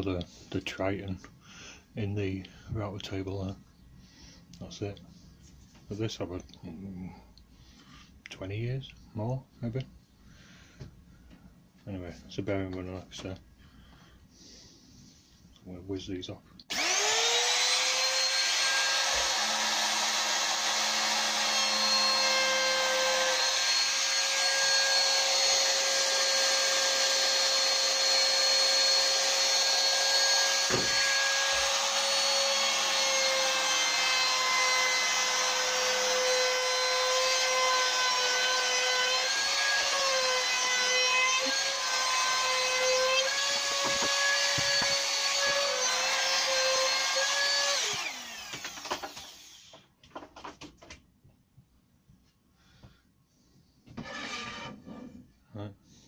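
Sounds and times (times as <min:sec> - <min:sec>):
trim router whining: 0:16.7 - 0:49.8.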